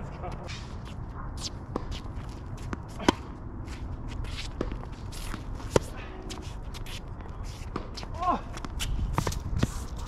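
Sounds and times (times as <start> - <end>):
footsteps and shoe scuffs on court: 0.0 - 10.0.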